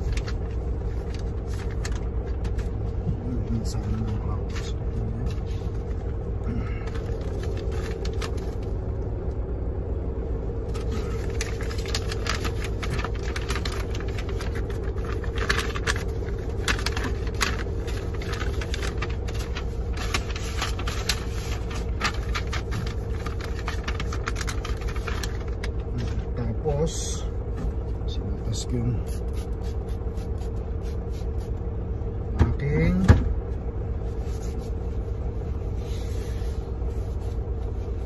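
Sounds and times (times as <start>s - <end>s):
paper rustling: 0.0s - 2.8s, 6.8s - 8.7s, 10.7s - 26.3s
truck engine idling: 0.0s - 38.0s.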